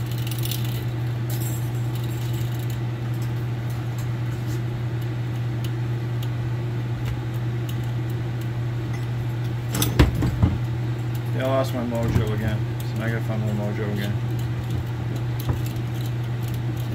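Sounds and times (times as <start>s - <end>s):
steady low hum: 0.0s - 16.9s
light ticks of copper wire: 5.0s - 6.4s.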